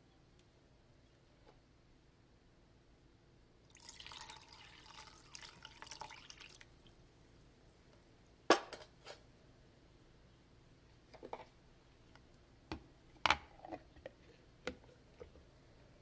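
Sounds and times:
water pouring and splashing: 3.7s - 6.7s.

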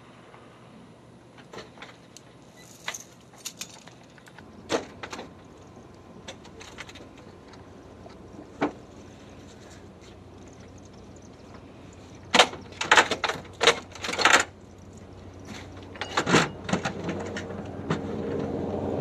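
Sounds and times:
faint steady hum: 0.0s - 19.0s
clicks and rattles of door fittings: 12.3s - 14.6s.

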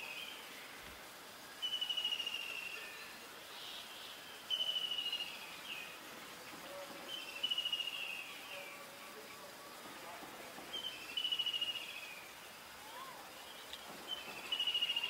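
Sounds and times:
faint outdoor background noise: 0.0s - 15.0s.

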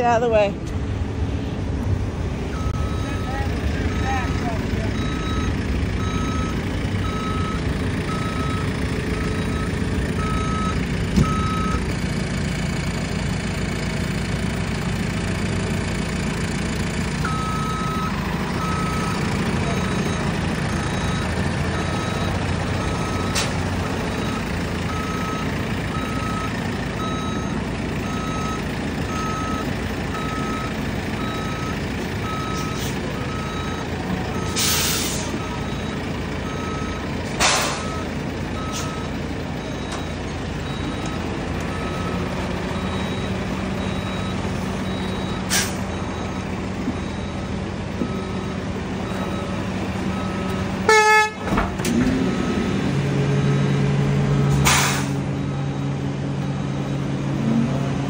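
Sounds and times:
diesel engine running: 0.0s - 58.0s
reversing alarm beeping: 2.5s - 11.9s, 17.2s - 51.4s, 52.1s - 54.6s, 55.3s - 57.7s
short hisses: 54.6s - 55.2s.

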